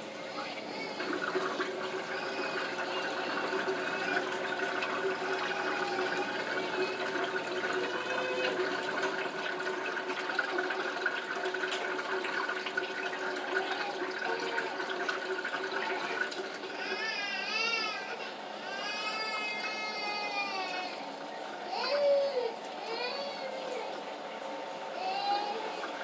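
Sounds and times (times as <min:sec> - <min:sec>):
water running from tap: 0:00.0 - 0:26.0
young child crying: 0:01.8 - 0:08.7, 0:15.8 - 0:24.0, 0:24.9 - 0:26.0.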